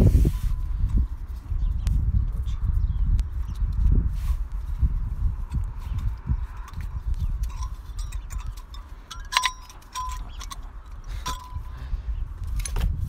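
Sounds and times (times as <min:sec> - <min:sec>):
sharp metallic clinks: 0:05.4 - 0:12.8.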